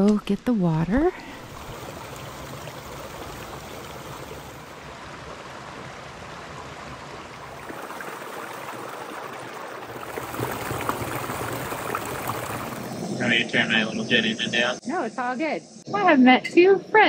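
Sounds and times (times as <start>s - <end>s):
brook trickling over rocks: 1.3s - 13.0s.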